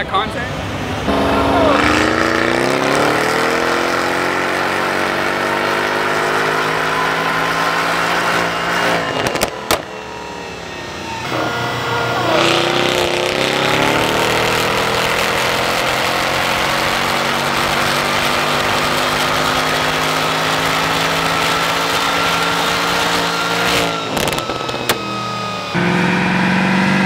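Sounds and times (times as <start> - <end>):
car engine revving at full throttle: 0.0 - 27.0
exhaust cracks: 9.0 - 10.0.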